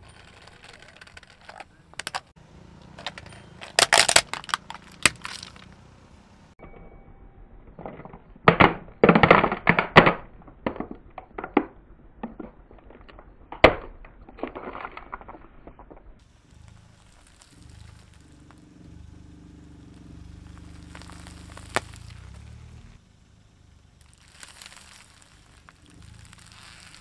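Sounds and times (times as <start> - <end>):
plastic toy cracking under tyre: 0.0 - 5.8, 7.7 - 18.6, 20.0 - 22.4, 24.0 - 27.0
small clicks: 0.0 - 5.8, 12.3 - 18.7, 19.9 - 22.5, 24.0 - 27.0.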